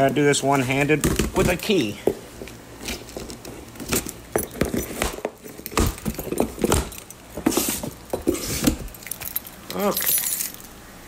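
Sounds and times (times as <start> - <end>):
key ring jingling: 8.8 - 10.8.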